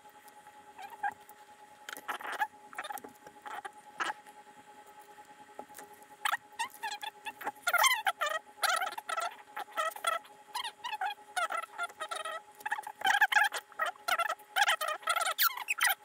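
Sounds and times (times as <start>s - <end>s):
squeaks bending in pitch: 6.2s - 16.0s.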